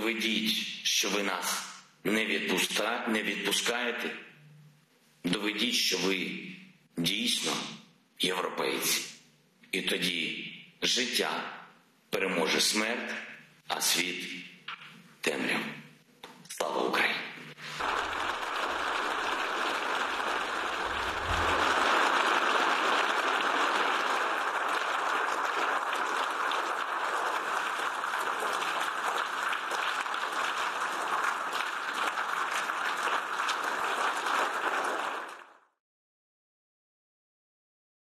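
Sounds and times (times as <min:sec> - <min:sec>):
large crowd applauding: 0:17.6 - 0:35.8.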